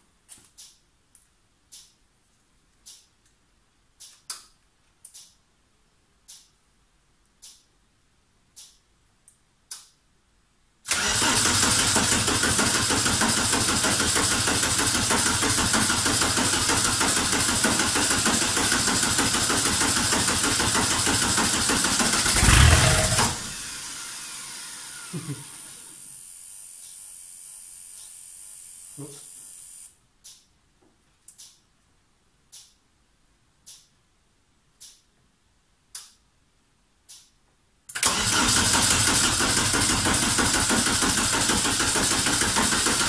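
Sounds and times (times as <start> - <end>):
diesel engine cranking: 10.9 - 15.5, 20.0 - 25.0, 38.0 - 43.0.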